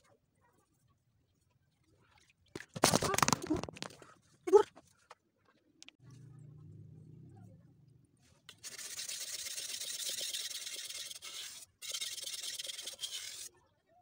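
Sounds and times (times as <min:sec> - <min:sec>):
knife scraping on whetstone: 0:08.7 - 0:13.5.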